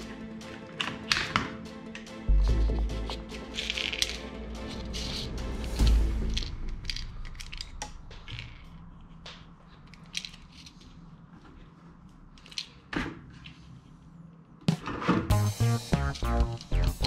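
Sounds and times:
plastic parts clicking and knocking: 0.8s - 1.6s, 5.8s - 10.8s.

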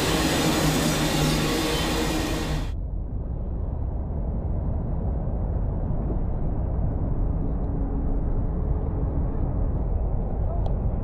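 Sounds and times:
distant steam locomotive rumble: 0.0s - 2.8s.

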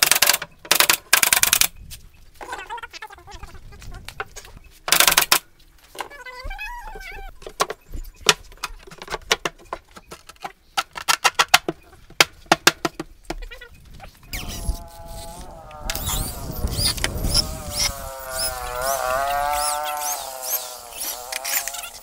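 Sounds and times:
wooden panels knocking and clicking: 7.4s - 13.4s
electric drill whining: 14.3s - 22.0s.

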